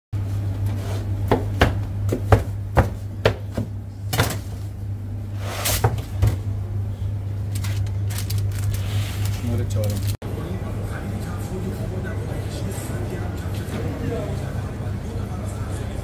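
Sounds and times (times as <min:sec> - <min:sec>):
steady low hum: 0:00.2 - 0:16.0
knife chopping on cutting board: 0:01.2 - 0:04.4.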